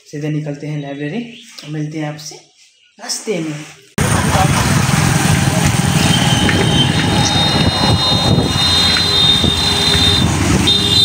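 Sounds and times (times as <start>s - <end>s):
engine and traffic noise: 4.0s - 11.0s
wind on microphone: 5.3s - 11.0s
thin high whine: 5.8s - 11.0s.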